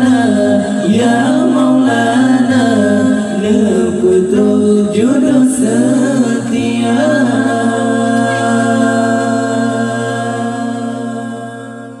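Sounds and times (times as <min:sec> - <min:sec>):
man singing into a microphone: 0:00.0 - 0:12.0.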